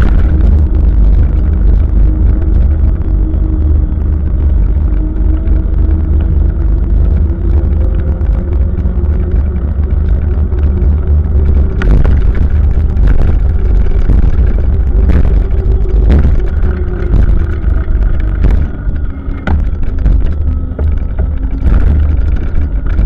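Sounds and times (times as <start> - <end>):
bike rattling over bumps: 0.0 - 23.0
faint steady hum: 0.0 - 23.0
wind and road noise rumble: 0.0 - 23.0.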